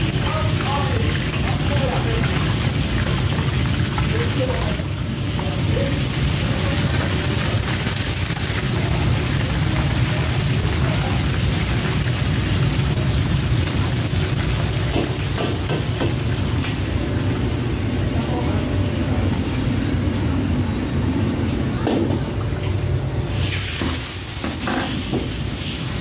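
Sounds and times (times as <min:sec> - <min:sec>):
food sizzling in hot oil: 0:00.0 - 0:17.0, 0:23.2 - 0:26.0
gas burner rumbling: 0:00.0 - 0:26.0.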